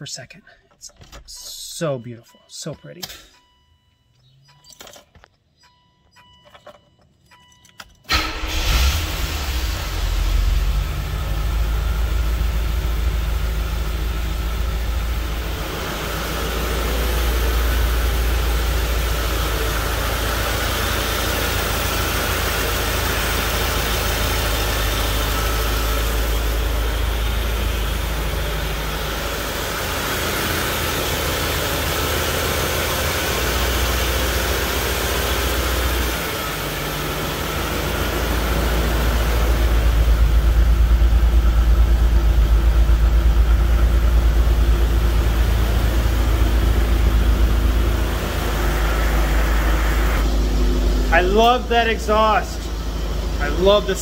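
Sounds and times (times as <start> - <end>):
car engine starting and idling: 0.0 - 54.0
dashboard chimes: 1.2 - 8.1.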